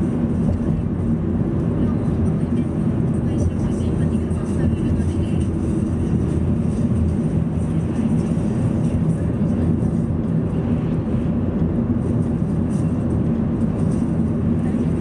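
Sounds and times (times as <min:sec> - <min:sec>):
car cabin road and engine rumble: 0:00.0 - 0:15.0.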